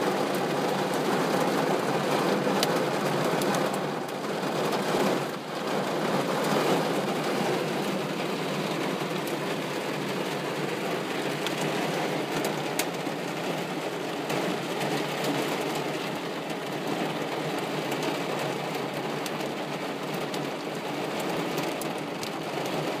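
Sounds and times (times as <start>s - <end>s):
heavy rain on window glass: 0.0s - 23.0s
raindrop ticks: 2.0s - 4.2s, 11.2s - 13.0s, 14.2s - 22.9s.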